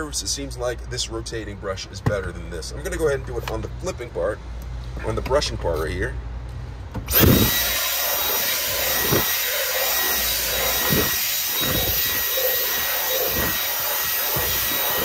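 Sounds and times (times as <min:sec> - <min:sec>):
cordless vacuum high whine: 0:07.1 - 0:15.0.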